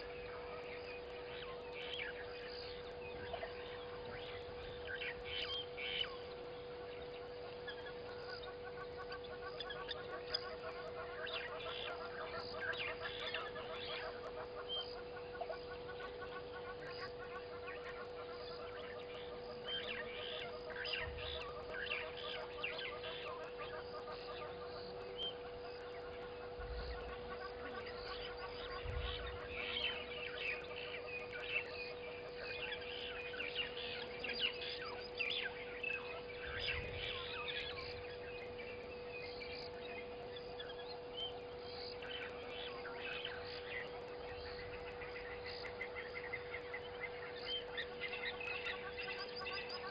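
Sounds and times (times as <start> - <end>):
birds calling and chirping: 0.0 - 49.9
faint steady hum: 0.0 - 49.9.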